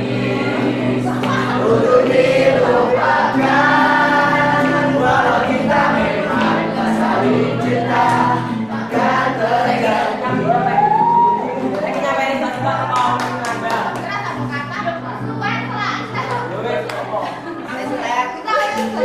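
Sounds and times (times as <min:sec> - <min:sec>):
young voices singing in chorus: 0:00.0 - 0:11.7
acoustic guitar: 0:00.0 - 0:19.0.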